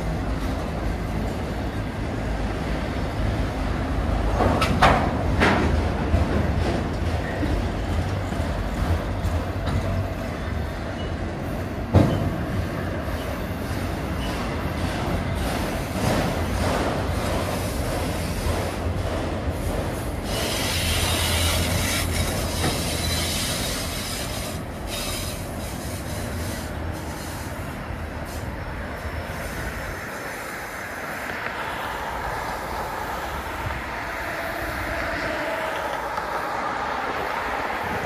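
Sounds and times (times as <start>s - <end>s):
freight cars rolling on rails: 0.0s - 38.0s
wheel squeal: 20.2s - 27.8s.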